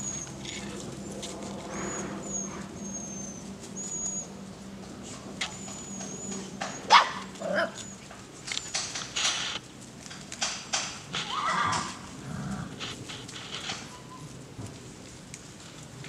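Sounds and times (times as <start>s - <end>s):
dog whining: 0.0s - 4.3s, 5.4s - 8.0s, 13.8s - 14.4s
puppies yelping and squealing: 0.0s - 4.3s, 5.4s - 8.1s, 13.8s - 14.4s.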